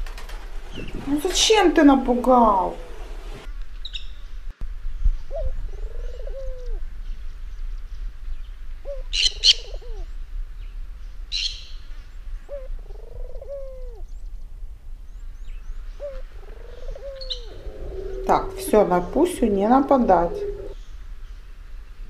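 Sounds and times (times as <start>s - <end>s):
dove cooing: 2.2s - 3.5s, 5.3s - 6.9s, 8.8s - 10.1s, 12.4s - 14.1s, 15.9s - 20.8s.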